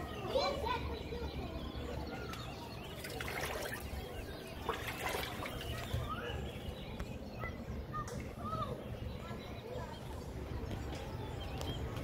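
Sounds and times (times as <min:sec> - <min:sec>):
water trickling among rocks: 0:02.9 - 0:06.0.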